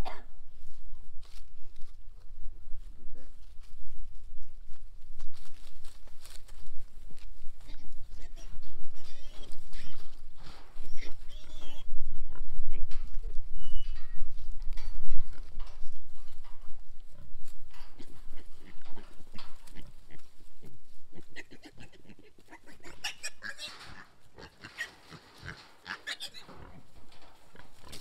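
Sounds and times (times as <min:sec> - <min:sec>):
piglets grunting and squealing: 0:07.6 - 0:13.2, 0:17.9 - 0:27.0.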